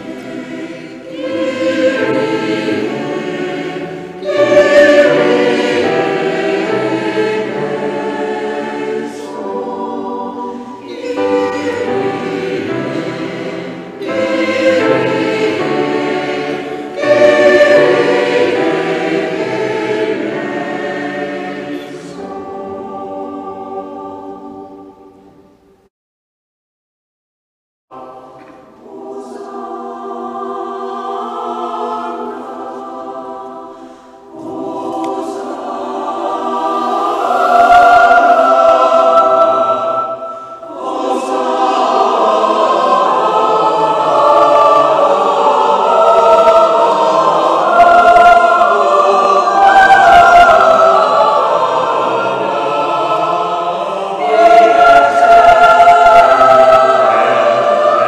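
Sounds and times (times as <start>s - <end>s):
mixed choir singing: 0.0s - 25.8s, 27.9s - 58.0s.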